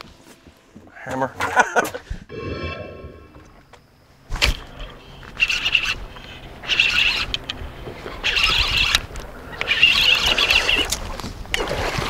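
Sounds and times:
fishing reel whirring: 4.7 - 11.1.

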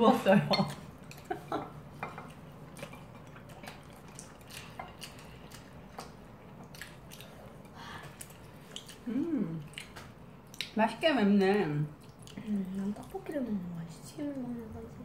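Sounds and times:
soft wet chewing: 0.6 - 15.0.

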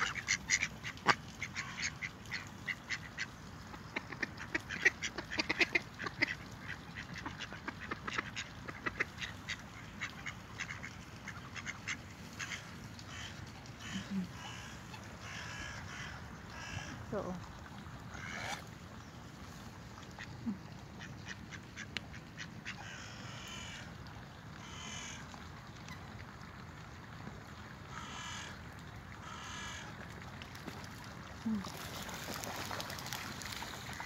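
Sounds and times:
ducks quacking: 0.0 - 17.1, 18.2 - 18.7.

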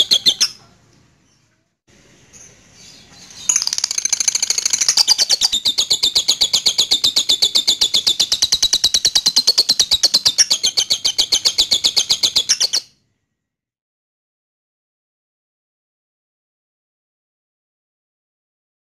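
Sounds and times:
lovebird chattering chirps: 0.0 - 0.6, 2.4 - 12.9.

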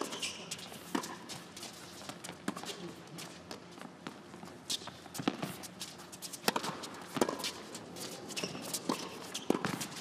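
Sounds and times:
faint arena background: 0.0 - 10.0
tennis racket hitting ball: 6.4 - 7.7, 8.4 - 10.0.

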